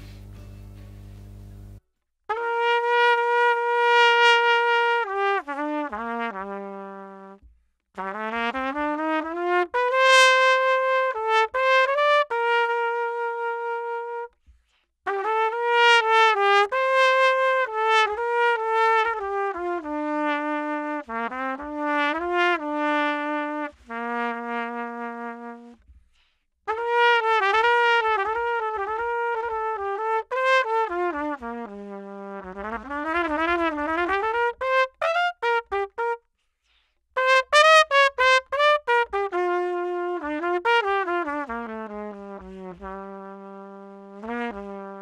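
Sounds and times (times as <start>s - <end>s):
faint low hum: 0.0s - 1.8s
solo trumpet melody: 0.0s - 14.4s, 15.1s - 25.8s, 26.7s - 36.3s, 37.2s - 45.0s.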